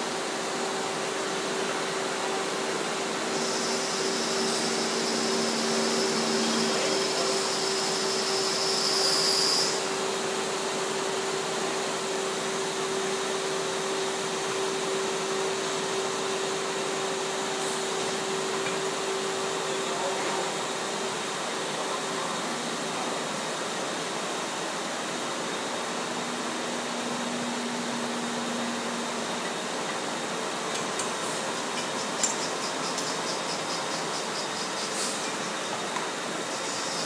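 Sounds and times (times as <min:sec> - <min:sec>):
industrial machinery drone: 0:00.0 - 0:37.0
high hiss: 0:03.2 - 0:10.0.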